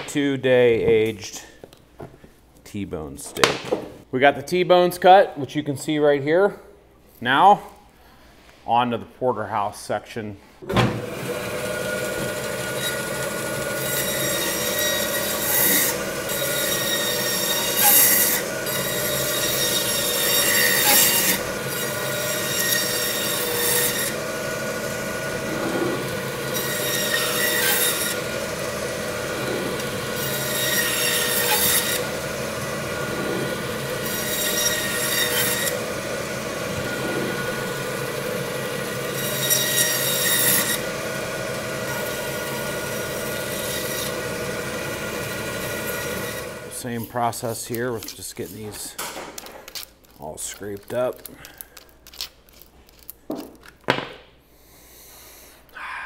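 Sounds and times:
band saw motor hum: 10.9 - 46.8
saw blade rasping through bone: 12.8 - 35.9.

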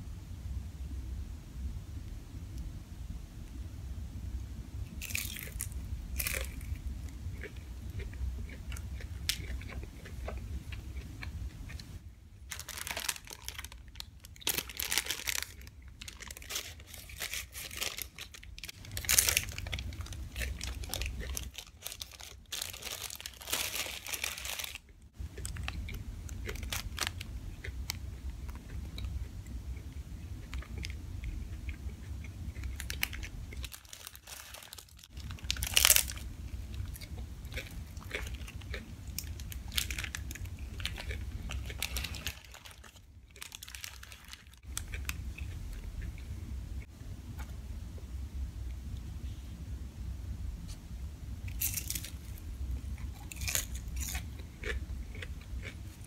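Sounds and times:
crunchy bites and chewing: 5.0 - 46.2, 51.5 - 56.0
paper wrapper crinkling: 12.5 - 25.8, 26.5 - 27.3, 32.8 - 36.3, 39.3 - 45.1.

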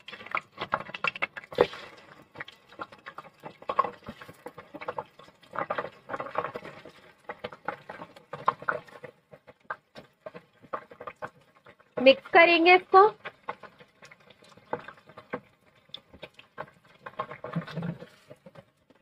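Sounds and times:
chicken frying in hot oil: 0.0 - 19.0.

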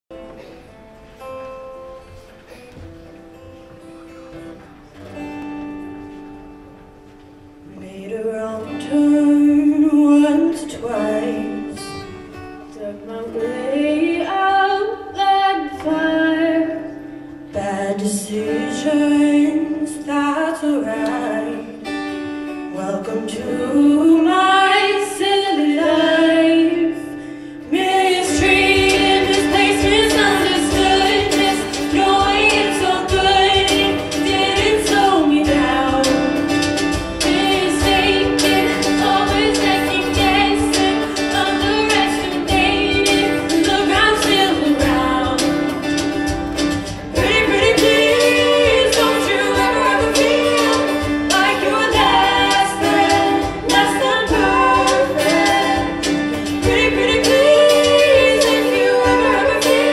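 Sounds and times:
choir singing: 27.7 - 45.8, 47.1 - 59.9
girls singing solo: 27.7 - 46.1, 47.1 - 59.9
band and drums: 28.3 - 59.9.

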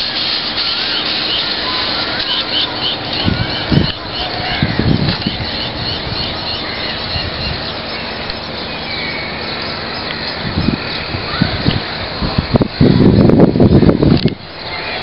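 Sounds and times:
distant traffic: 0.0 - 15.0
wind on microphone: 2.7 - 8.5, 9.8 - 15.0.

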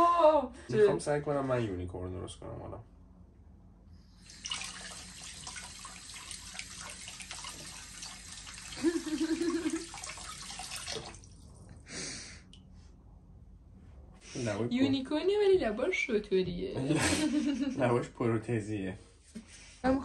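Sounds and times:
tap water running: 4.2 - 11.6.

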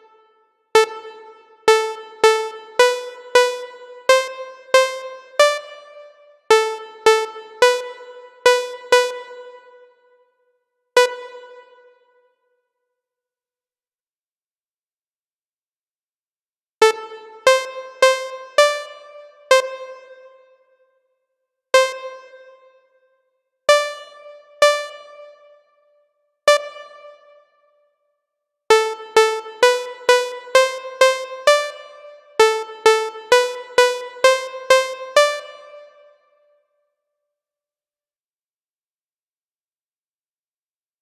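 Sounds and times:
synthesizer notes: 28.7 - 35.9.

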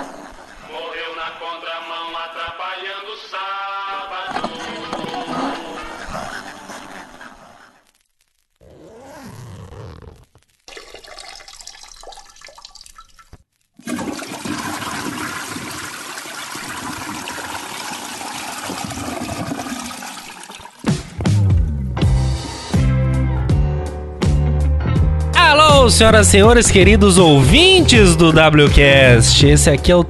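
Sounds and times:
music: 1.9 - 6.6, 20.8 - 30.0.

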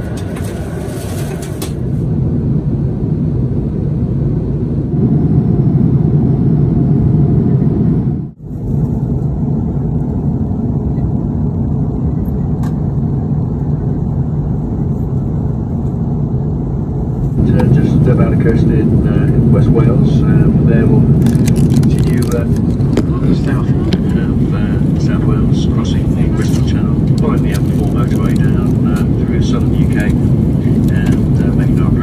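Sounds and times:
airplane cabin engine drone: 0.0 - 32.0.

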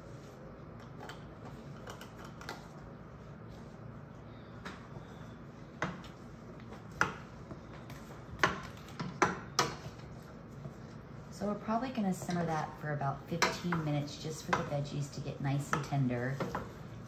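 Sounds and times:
wooden spoon stirring vegetables: 4.8 - 17.0.

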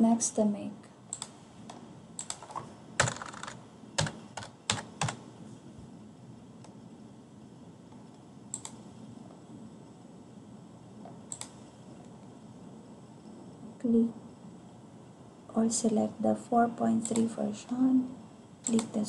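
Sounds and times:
keyboard keys clicking: 2.2 - 5.2.

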